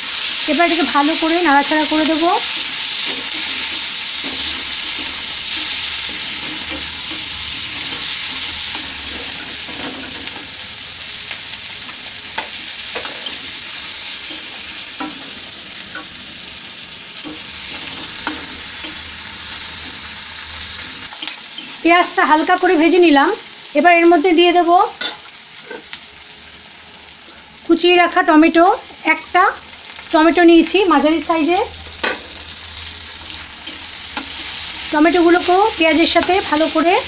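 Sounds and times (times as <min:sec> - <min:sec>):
onions sizzling in oil: 0:00.0 - 0:37.0
spatula scraping and tapping pan: 0:03.0 - 0:10.5, 0:17.2 - 0:19.1.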